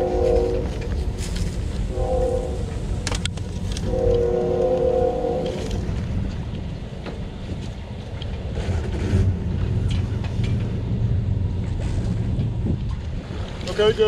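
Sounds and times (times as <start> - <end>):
wind noise on microphone: 0.0 - 14.0
held horn-like chord: 1.9 - 2.8.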